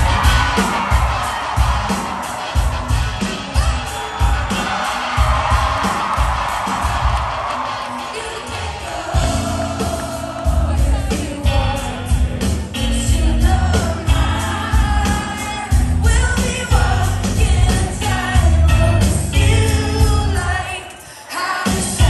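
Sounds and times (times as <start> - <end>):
live band playing pop song: 0.0 - 22.0
woman singing lead: 7.8 - 22.0.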